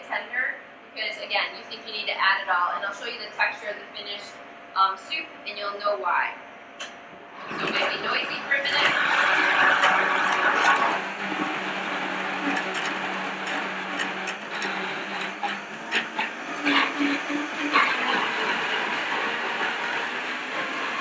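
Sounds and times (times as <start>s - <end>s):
blender whirring: 7.4s - 21.0s.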